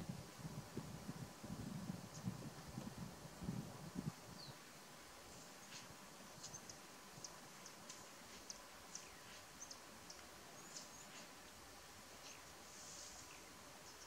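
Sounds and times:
faint high chirps and ticks: 5.3 - 14.0.

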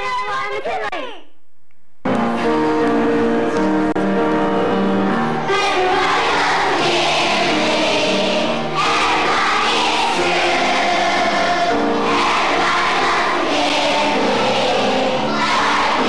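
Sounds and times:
choir singing with accompaniment: 4.4 - 16.0.

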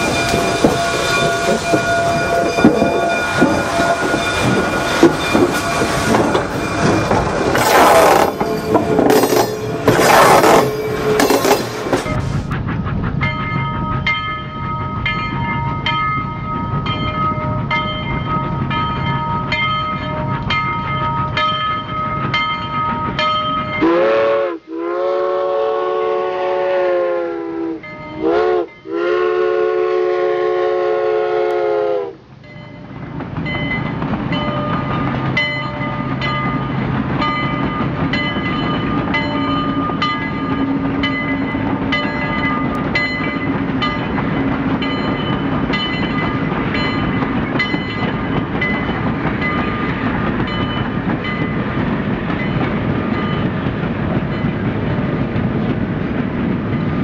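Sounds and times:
steam locomotive whistle blasts: 0.0 - 11.9, 23.8 - 32.2.

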